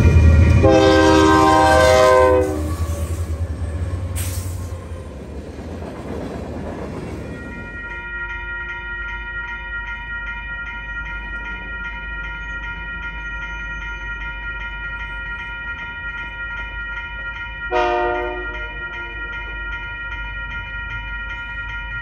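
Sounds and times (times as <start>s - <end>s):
railroad crossing bell ringing: 0.0s - 22.0s
locomotive air horn blast: 0.6s - 3.3s, 17.7s - 18.6s.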